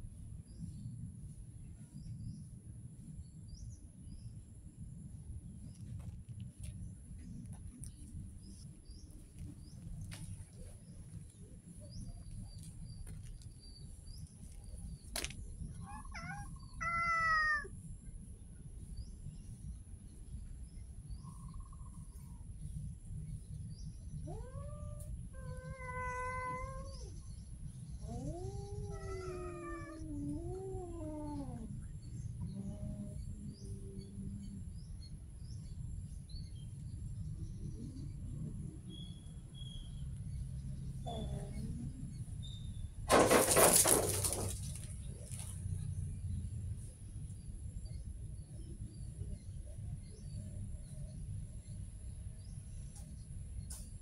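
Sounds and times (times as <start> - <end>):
cat meowing: 15.8 - 17.7, 24.3 - 27.1, 28.1 - 31.6.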